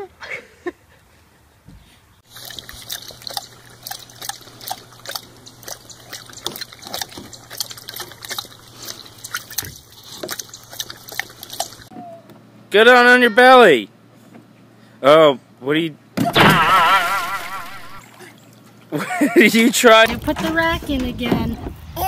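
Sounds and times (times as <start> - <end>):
lapping water from a bowl: 2.2 - 11.9.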